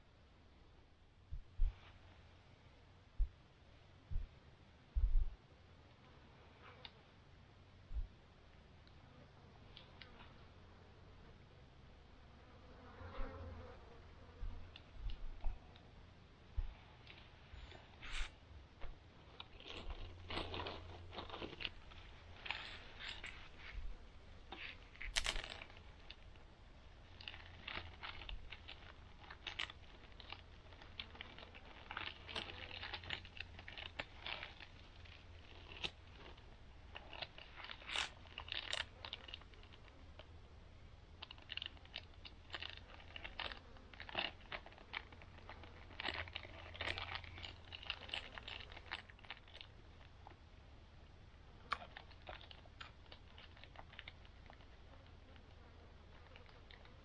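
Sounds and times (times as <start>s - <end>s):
low hum: 0.0s - 5.8s, 7.4s - 9.0s
items rustling and crinkling: 1.3s - 2.3s, 14.4s - 40.5s, 41.1s - 50.6s, 51.7s - 57.0s.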